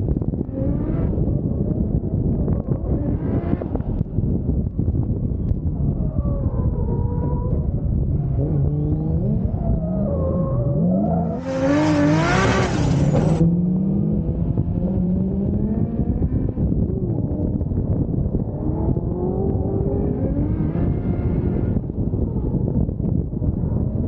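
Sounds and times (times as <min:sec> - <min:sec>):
car engine revving: 0:07.1 - 0:17.8, 0:18.4 - 0:22.3.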